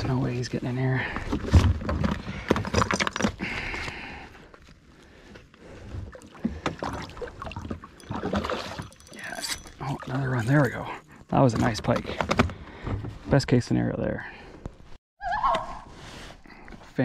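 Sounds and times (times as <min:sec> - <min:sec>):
fish thrashing and splashing: 0:06.1 - 0:10.4.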